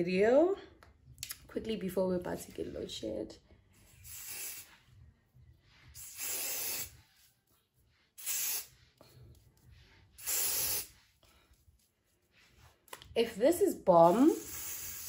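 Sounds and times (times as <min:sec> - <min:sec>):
aerosol hair spray hissing: 0:04.0 - 0:04.8, 0:06.0 - 0:07.0, 0:08.2 - 0:08.8, 0:10.2 - 0:11.0, 0:14.0 - 0:15.0.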